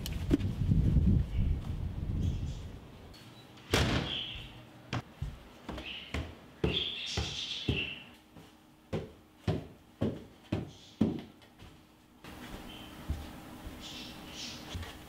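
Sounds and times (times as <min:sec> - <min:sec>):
footsteps on wooden stairs: 0:04.4 - 0:15.0.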